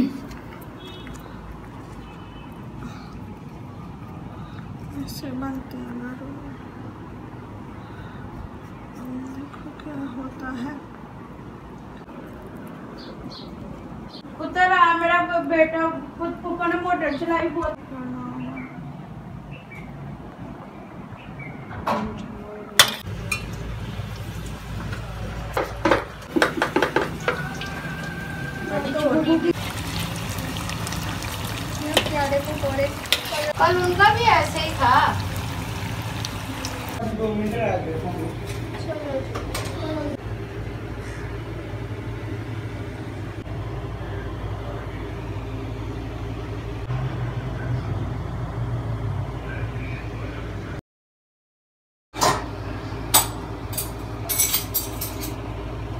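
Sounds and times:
low mechanical hum: 0.0s - 50.8s
dishes and utensils clattering: 25.5s - 27.6s, 53.2s - 55.4s.

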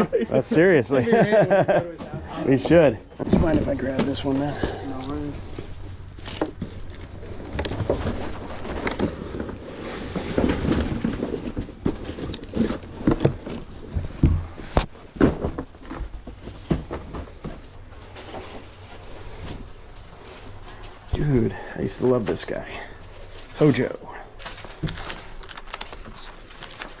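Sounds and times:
cardboard box rustling and scraping: 2.5s - 21.4s.

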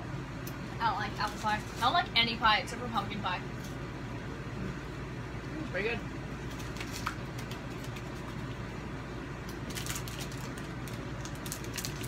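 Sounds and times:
snack eating crackles: 6.5s - 8.6s, 9.4s - 12.0s.

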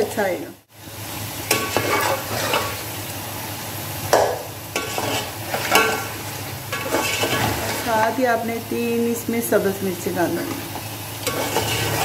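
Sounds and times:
curry sizzling in metal pot: 0.1s - 12.0s
metal spoon scraping pot: 1.5s - 2.7s, 6.7s - 7.8s, 11.2s - 12.0s.

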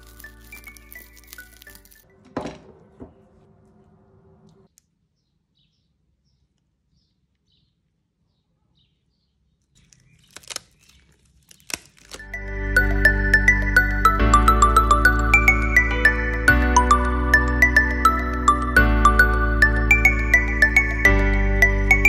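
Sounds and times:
dried sheet cracking and crackling: 0.0s - 2.1s, 9.7s - 12.4s.

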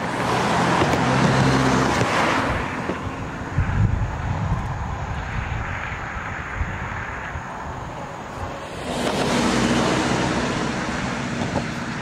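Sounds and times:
wind rumble on microphone: 0.8s - 11.7s
car passing close by: 5.1s - 12.0s.

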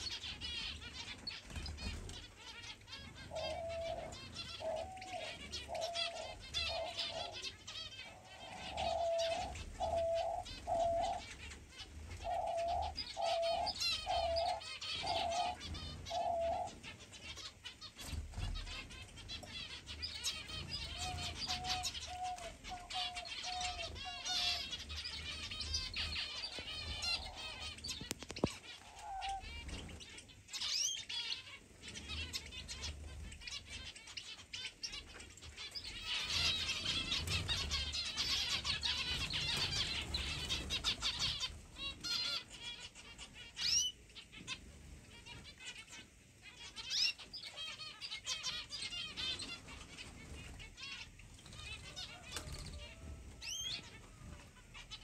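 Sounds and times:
wings fluttering: 0.0s - 7.5s, 8.4s - 30.2s, 35.0s - 42.3s, 49.0s - 55.0s
doves cooing: 0.0s - 30.1s, 35.6s - 43.0s, 48.4s - 55.0s
small birds twittering and chirping: 0.0s - 55.0s.

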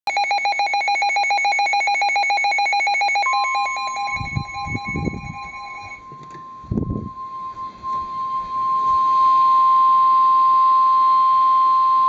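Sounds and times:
fast-pulsing electronic beep: 0.1s - 6.0s
steady warning alarm tone: 0.1s - 11.4s.

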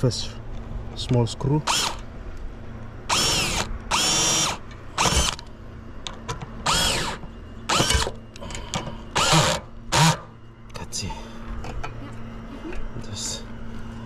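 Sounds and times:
power drill driving screw: 1.7s - 2.0s, 3.1s - 5.4s, 6.6s - 8.2s, 9.2s - 10.3s.

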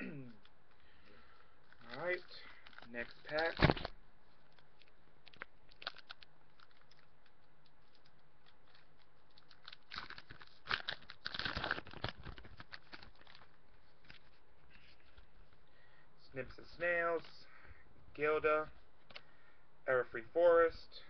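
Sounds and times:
wrapper crackling and tearing: 1.6s - 14.4s.

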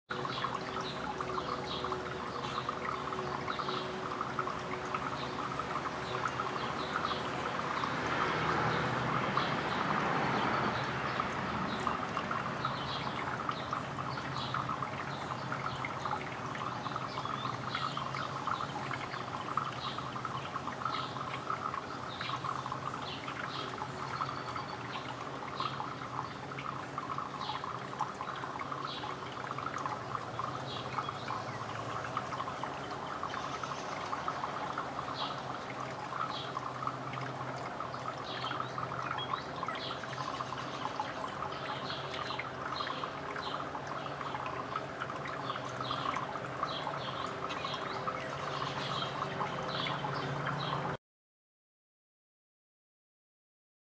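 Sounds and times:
birds chirping: 9.4s - 50.8s.

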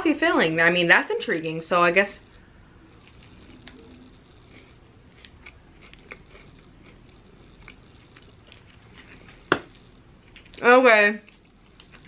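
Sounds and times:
chewing crunches: 2.9s - 10.6s, 11.2s - 12.0s.

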